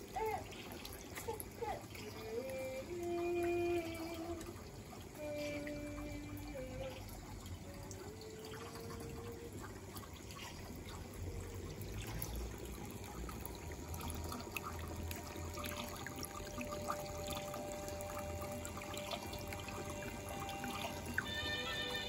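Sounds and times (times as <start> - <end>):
water trickling and splashing: 0.0 - 22.0
faint held tones: 16.2 - 22.0.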